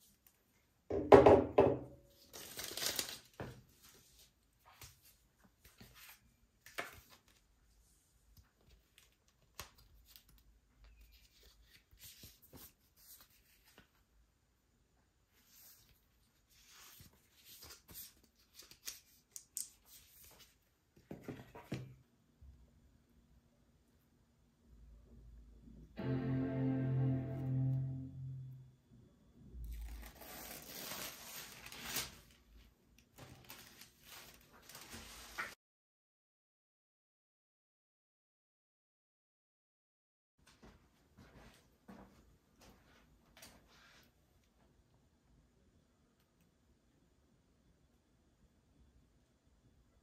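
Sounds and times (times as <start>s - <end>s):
paper and card rustling: 2.1s - 7.5s, 8.3s - 14.0s, 15.4s - 21.8s, 29.7s - 32.5s, 33.1s - 35.6s
paper wrapping rustling: 2.1s - 7.5s, 29.7s - 35.6s.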